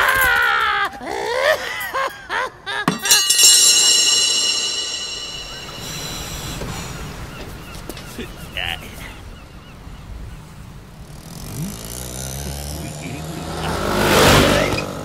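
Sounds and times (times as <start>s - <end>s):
bright metallic ringing: 2.9s - 8.4s
sharp hits: 2.9s - 8.4s.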